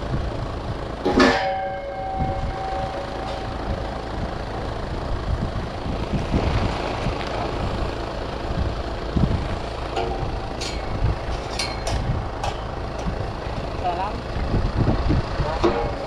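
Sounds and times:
heavy machine engine running: 0.0s - 16.0s.

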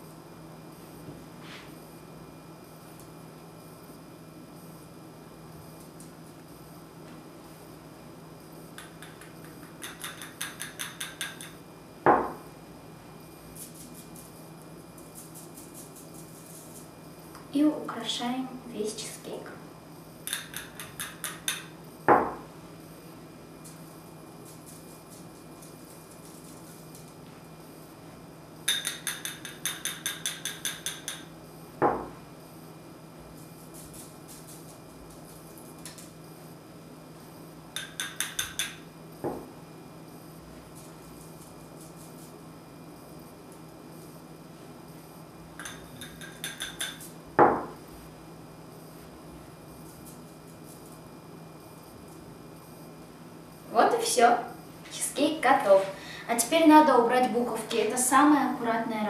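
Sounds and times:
glass bowl tapping metal strainer: 8.8s - 11.6s, 28.7s - 31.3s, 37.8s - 38.8s, 45.6s - 47.0s.

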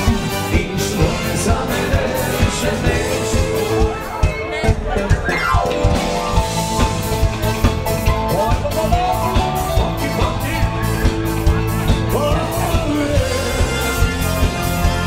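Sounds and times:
drum kit beat: 0.0s - 15.0s
guitar: 0.0s - 15.0s
person singing: 8.1s - 15.0s.

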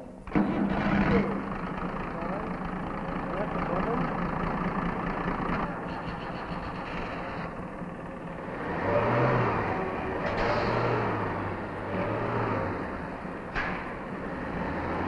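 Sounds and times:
engine running and revving: 5.2s - 15.0s.

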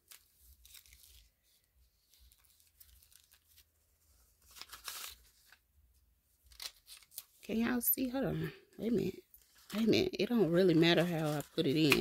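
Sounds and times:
paper banknotes rustling: 0.0s - 5.6s, 6.4s - 7.5s, 9.3s - 12.0s.

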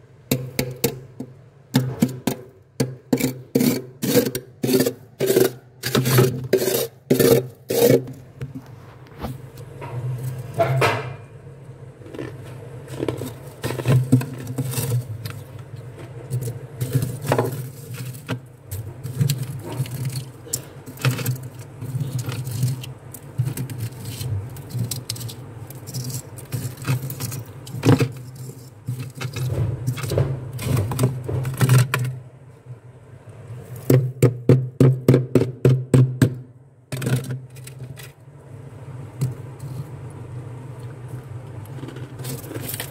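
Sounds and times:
low steady hum: 0.0s - 42.9s
metal spatula scraping frost: 3.1s - 9.3s, 12.9s - 15.5s.

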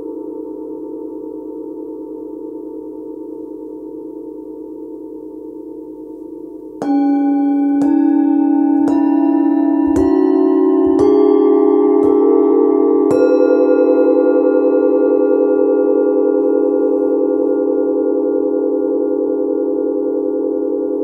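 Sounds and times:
singing bowls struck with mallet: 4.9s - 21.0s.

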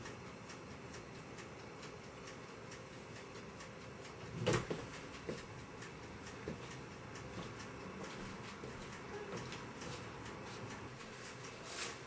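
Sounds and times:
faint regular ticking: 0.0s - 12.0s.

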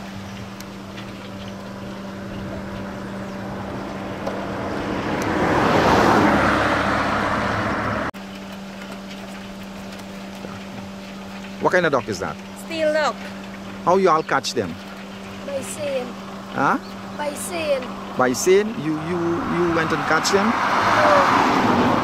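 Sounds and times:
steady low hum: 0.0s - 5.5s
vehicle passing by: 1.0s - 8.1s, 15.4s - 22.0s.

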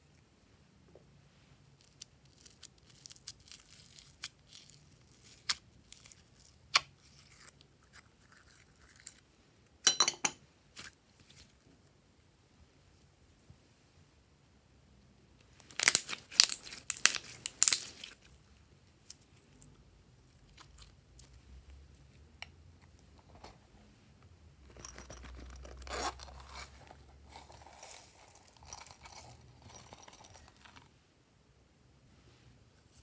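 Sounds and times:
slime crackling and popping: 15.6s - 18.3s.

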